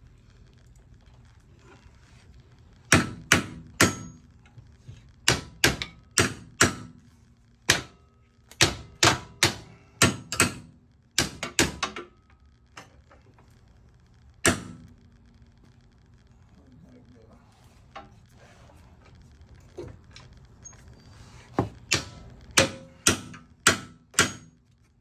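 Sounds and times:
hammer striking metal: 2.9 - 4.2, 5.3 - 7.0, 8.6 - 12.1, 21.9 - 24.6.

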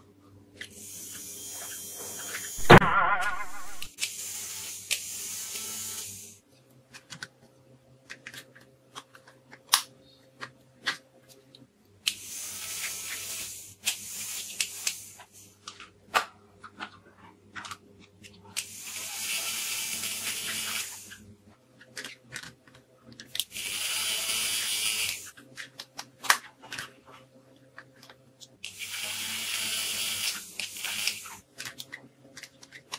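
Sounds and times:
small electric fan motors whirring: 0.6 - 2.6, 4.0 - 6.4, 12.0 - 15.8, 18.5 - 21.3, 23.2 - 25.8, 28.0 - 32.9.

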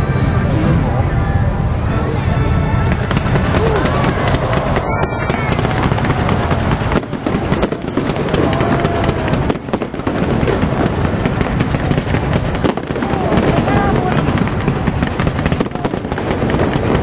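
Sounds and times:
fireworks crackling and popping: 0.0 - 17.0.

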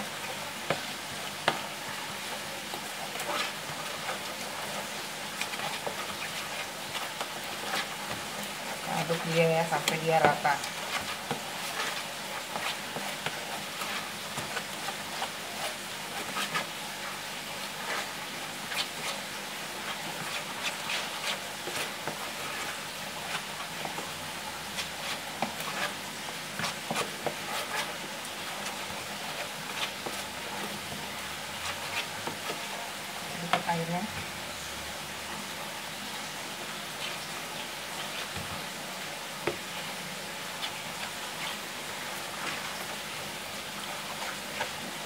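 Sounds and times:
utensil scraping batter in bowl: 0.3 - 34.3.

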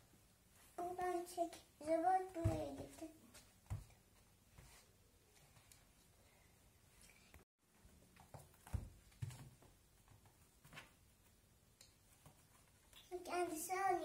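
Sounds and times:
cat padding on laminate floor: 7.7 - 12.9.

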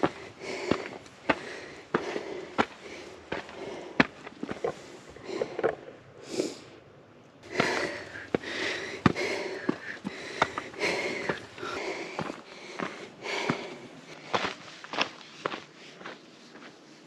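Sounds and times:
boots on rock steps: 0.0 - 5.8, 7.4 - 16.2
person breathing hard: 0.0 - 6.8, 7.4 - 14.8.

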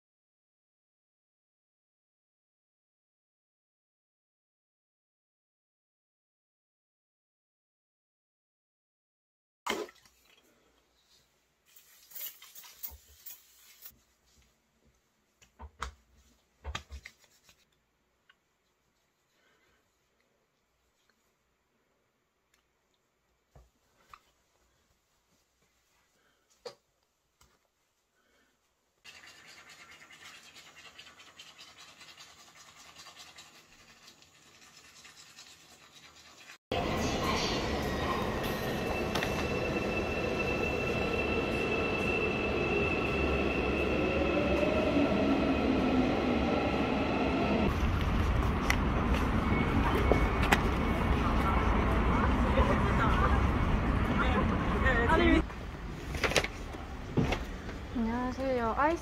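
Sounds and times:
hands rubbing face: 16.8 - 17.8
toothbrush scrubbing teeth: 29.0 - 36.6.

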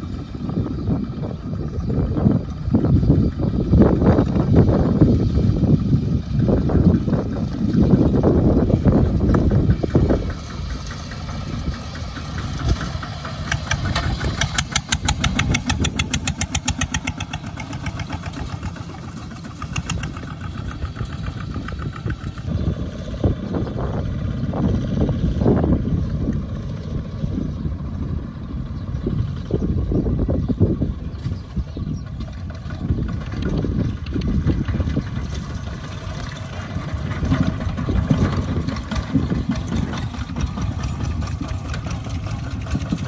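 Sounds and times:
diesel engines chugging: 0.0 - 43.0.

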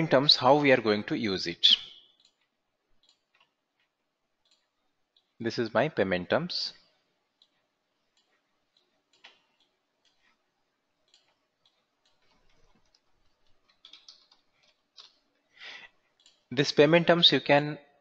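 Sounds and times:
computer mouse clicks: 2.0 - 5.4, 7.4 - 10.4, 11.0 - 15.4, 16.1 - 16.5.

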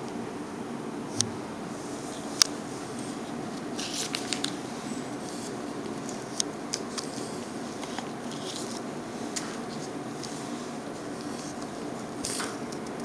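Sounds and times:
steady background hiss: 0.0 - 13.0
plastic pouch crinkling: 3.7 - 8.9.

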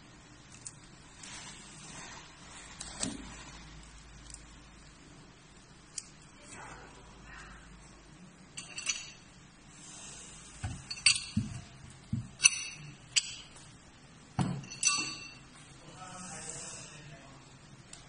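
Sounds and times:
metal clinks and knocks: 8.5 - 9.4, 10.6 - 13.6, 14.4 - 15.5.

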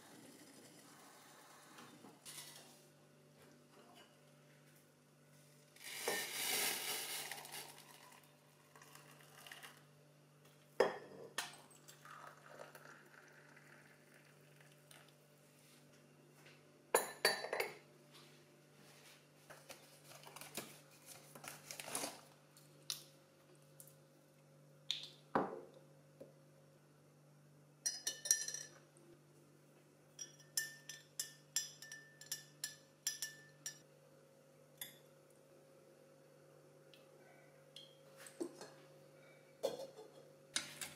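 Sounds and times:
faint steady hum: 0.0 - 40.9
water poured from kettle: 5.8 - 9.8, 11.8 - 15.1
cups and pots clinking: 5.9 - 9.7, 10.8 - 13.8, 17.0 - 17.8, 27.9 - 28.8, 30.2 - 33.8, 39.6 - 40.7
teaspoon stirring in glass mug: 30.2 - 33.8.

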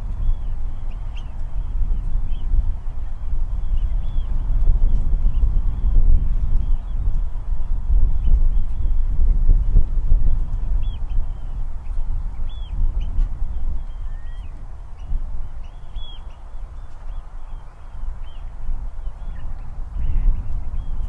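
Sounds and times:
partridges calling: 12.4 - 21.0.

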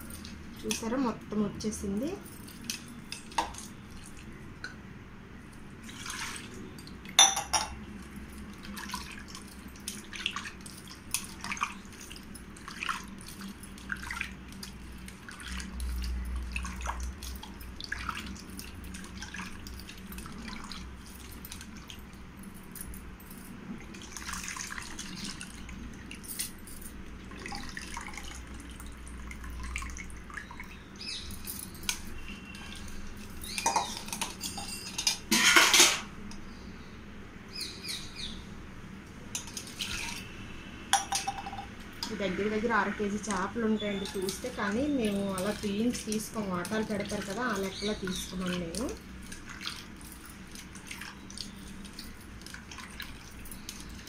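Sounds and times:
water splashing and dripping: 5.5 - 7.2, 8.0 - 23.0, 23.8 - 35.1, 39.3 - 40.3, 40.9 - 54.0.

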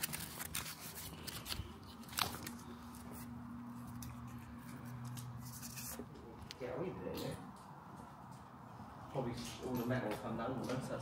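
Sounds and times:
sharp clicks and crunches: 0.0 - 7.7.

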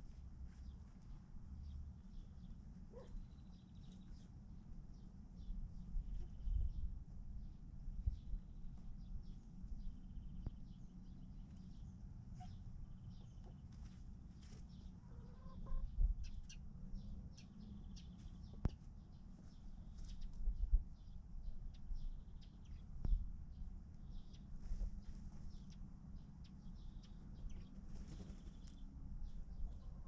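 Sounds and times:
chickens clucking: 15.0 - 15.9.

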